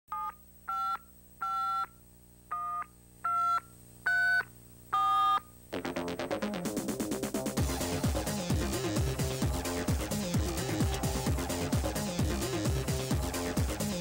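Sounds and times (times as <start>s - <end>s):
phone keypad beeps: 0.1s - 1.9s, 2.5s - 5.4s
fast-pulsing electronic music: 5.8s - 14.0s.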